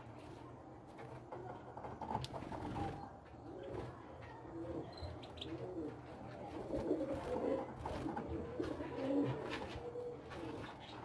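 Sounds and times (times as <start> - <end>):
pigeons cooing: 2.7 - 11.0.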